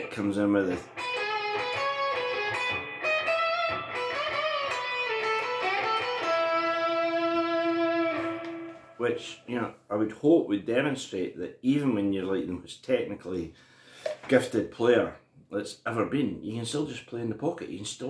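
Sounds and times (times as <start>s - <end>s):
electric guitar melody: 0.0s - 9.4s.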